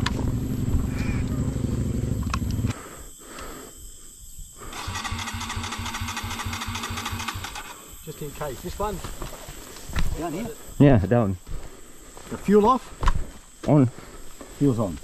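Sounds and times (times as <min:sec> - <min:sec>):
motorcycle engine running: 0:00.0 - 0:02.7, 0:04.8 - 0:07.7
motorcycle electric starter cranking: 0:04.7 - 0:07.8.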